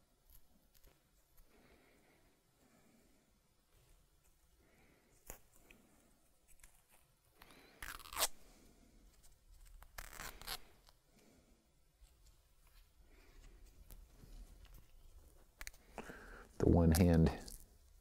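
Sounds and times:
tape pulled off roll rasping: 9.6 - 11.0.

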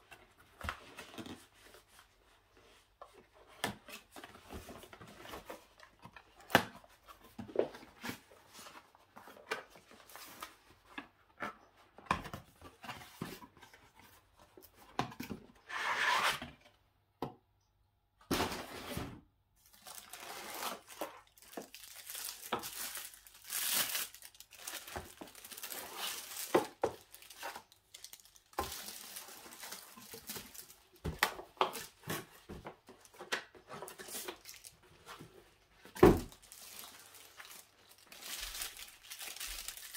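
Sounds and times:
wrapping tearing and crinkling: 19.6 - 32.3, 33.8 - 35.3, 36.2 - 39.9.

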